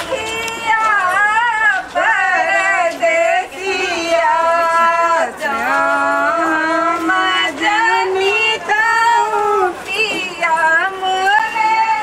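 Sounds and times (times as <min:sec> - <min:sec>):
women singing unaccompanied: 0:00.0 - 0:12.0.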